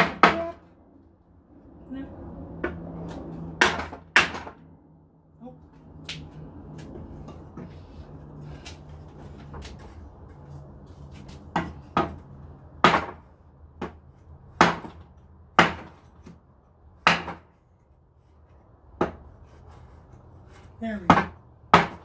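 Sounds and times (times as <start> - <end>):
hammer striking wooden board: 0.0 - 0.6, 3.6 - 4.6, 12.8 - 13.2, 14.6 - 15.0, 15.6 - 16.3, 17.0 - 17.5, 19.0 - 19.3, 21.1 - 22.0.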